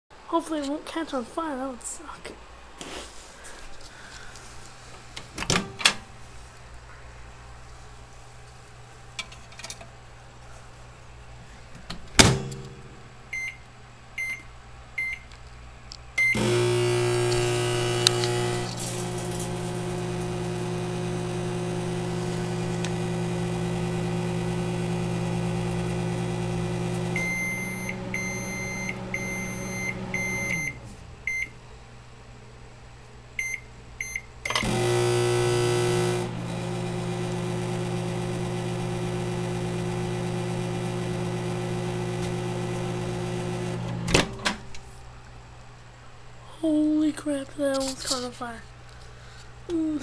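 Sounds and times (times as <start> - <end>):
microwave beeping: 12.2 - 13.6, 14.2 - 15.3, 16.2 - 31.6, 33.4 - 44.6
microwave oven humming: 16.2 - 32.0, 33.4 - 44.8
keypad beeps: 27.2 - 31.5.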